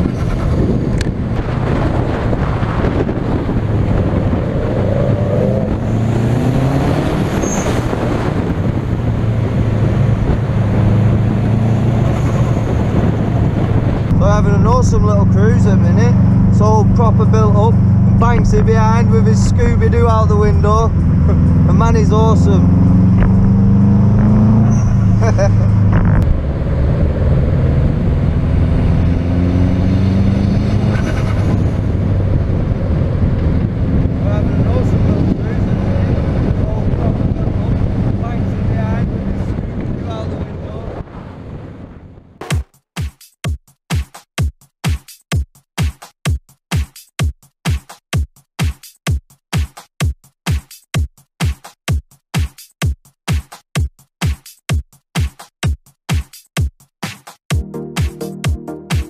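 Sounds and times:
car engine running: 0.0 - 40.7
road noise: 0.0 - 42.6.

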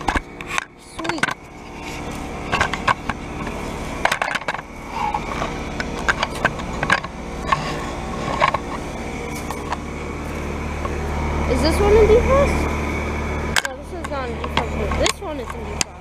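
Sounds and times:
sharp clicks and crunches: 0.0 - 11.2
heat pump humming: 0.0 - 16.0.

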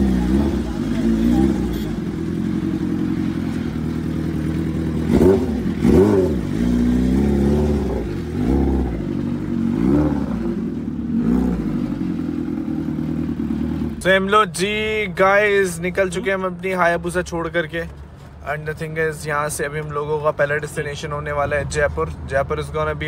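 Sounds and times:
motorcycle engine idling: 0.0 - 14.2.

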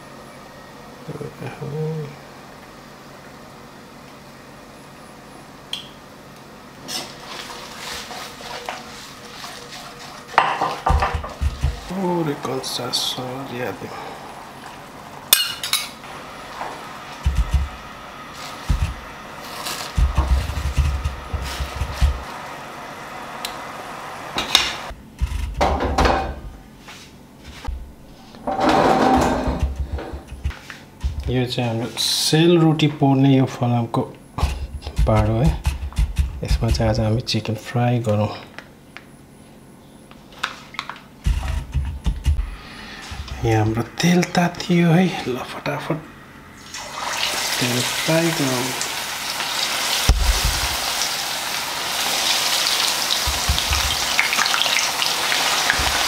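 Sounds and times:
heavy pan scraping on stove: 28.4 - 30.5.

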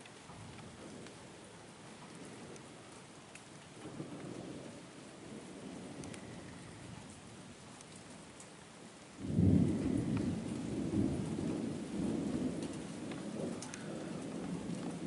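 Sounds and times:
steady rain falling: 0.0 - 15.0
thunder crack and rumble: 0.3 - 1.4, 3.8 - 7.9, 9.2 - 15.0.

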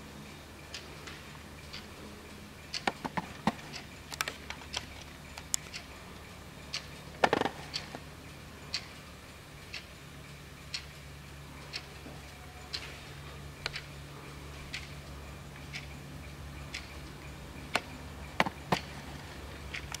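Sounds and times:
pendulum clock ticking: 0.0 - 20.0
sharp clicks: 2.7 - 5.9, 13.6 - 13.9.

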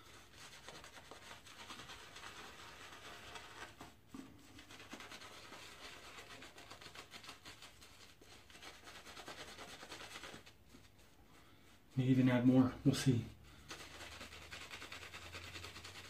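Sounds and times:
shaving brush scratchy rustle: 4.5 - 11.1, 12.0 - 16.0.

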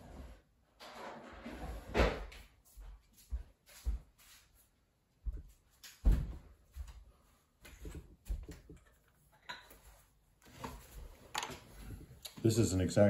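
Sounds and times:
objects knocking and clattering: 7.6 - 11.9.

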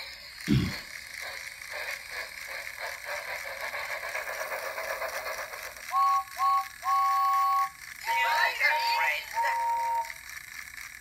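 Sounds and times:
toy train motor whirring: 0.0 - 11.0
electronic whistle toots: 5.9 - 10.2.

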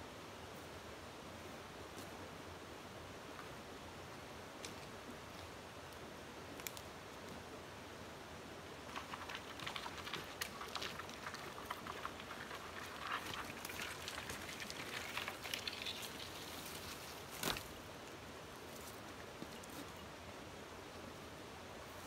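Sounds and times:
dry branches dragged over gravel: 8.9 - 17.8.

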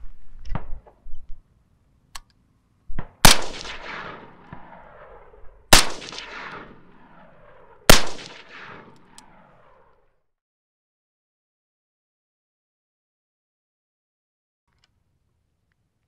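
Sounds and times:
suppressed rifle shots with echo: 2.9 - 10.0.

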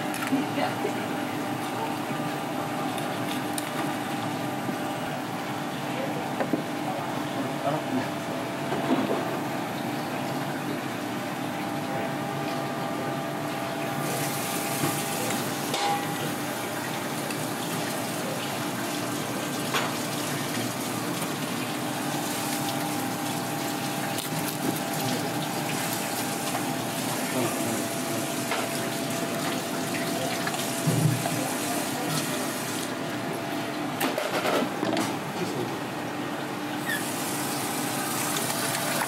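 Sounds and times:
faint kitchen hum: 0.0 - 39.0
tap water running into sink: 36.8 - 39.0.

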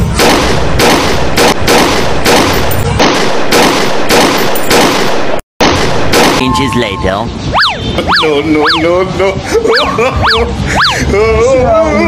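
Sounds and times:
rapid pistol gunshots: 0.0 - 6.5.

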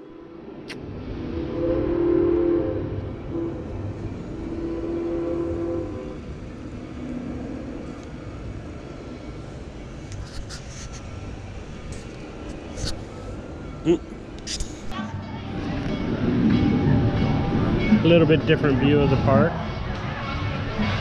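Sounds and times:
train whistle blasts: 1.5 - 3.7, 4.6 - 6.2.

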